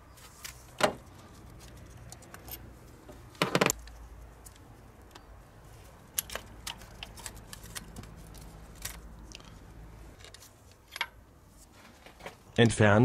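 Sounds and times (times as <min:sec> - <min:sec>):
pliers clicking and scraping metal: 0:06.0 - 0:09.6.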